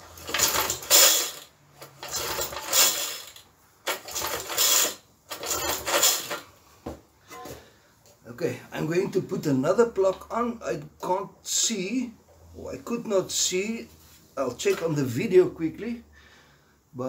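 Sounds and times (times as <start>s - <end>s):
recoil starter pull whirring rattle: 0.0s - 6.5s.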